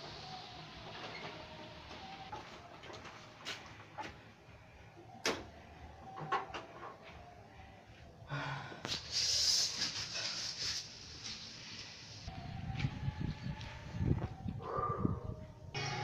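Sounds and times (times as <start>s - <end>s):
hissing noise: 8.9s - 12.3s.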